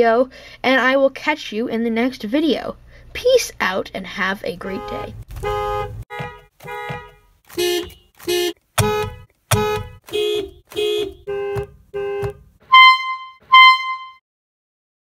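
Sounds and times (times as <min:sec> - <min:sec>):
car horn honks: 0:04.6 - 0:14.2
higher horn beeps: 0:04.6 - 0:14.2.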